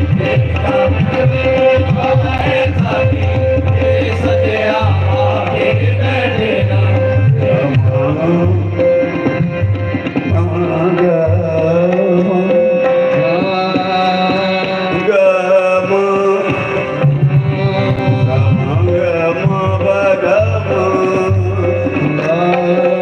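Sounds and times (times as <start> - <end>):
voices singing: 0.0 - 8.6
harmonium drone: 0.0 - 23.0
tabla beat: 0.0 - 23.0.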